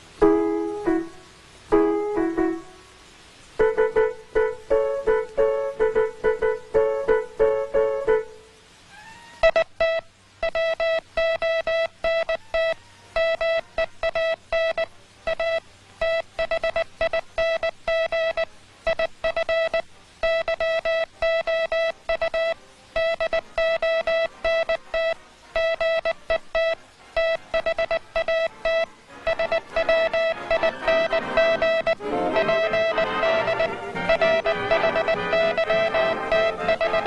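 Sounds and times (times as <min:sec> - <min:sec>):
morse code beeps: 0:09.4 - 0:37.0.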